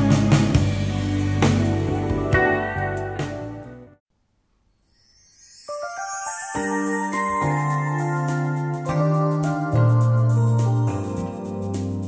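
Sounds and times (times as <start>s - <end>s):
pop ballad over speakers: 6.6s - 12.0s.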